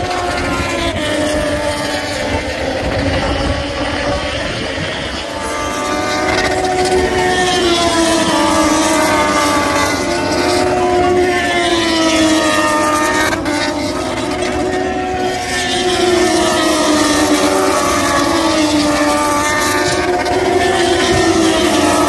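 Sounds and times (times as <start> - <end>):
racing motorcycle engines: 0.0 - 22.0.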